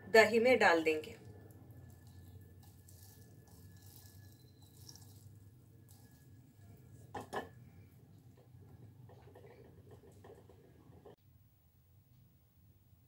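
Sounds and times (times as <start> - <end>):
water dripping and squelching: 1.2 - 7.2.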